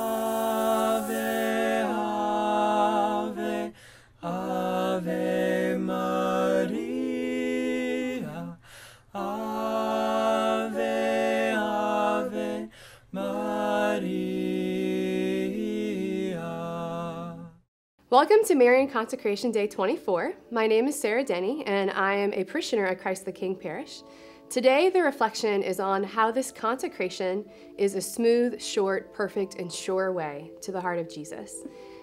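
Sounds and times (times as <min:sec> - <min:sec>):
person singing slow melody: 0:00.0 - 0:17.4.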